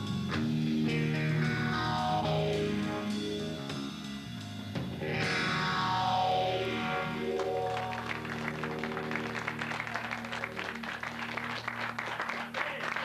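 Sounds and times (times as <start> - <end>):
electric guitar and bass chord: 0.0 - 12.0
audience clapping: 7.3 - 13.0.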